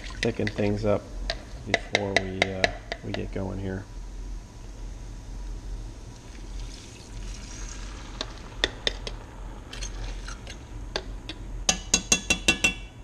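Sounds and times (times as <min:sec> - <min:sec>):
liquid pouring into a hot skillet: 0:06.2 - 0:10.8
metal fork tapping and scraping: 0:09.8 - 0:12.9.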